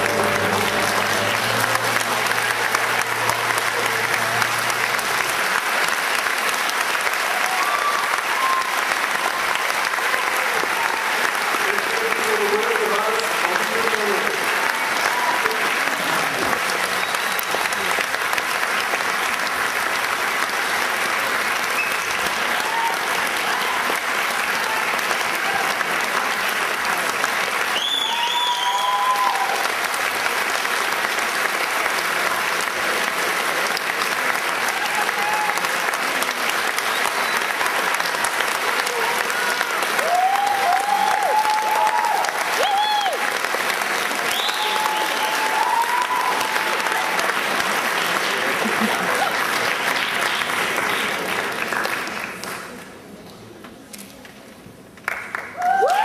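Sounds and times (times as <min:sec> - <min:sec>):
high cheer: 0:00.0 - 0:51.9, 0:55.1 - 0:56.0
audience applauding: 0:00.0 - 0:53.4, 0:55.0 - 0:56.0.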